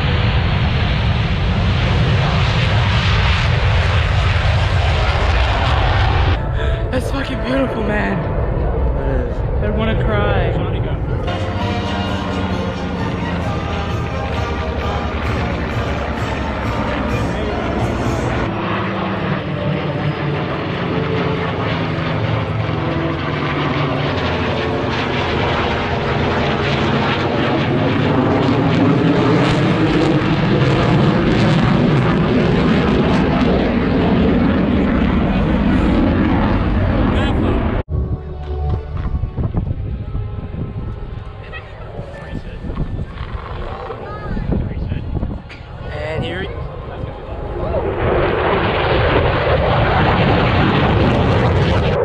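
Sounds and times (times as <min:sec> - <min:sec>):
aircraft engine flying past: 0:00.0 - 0:52.0.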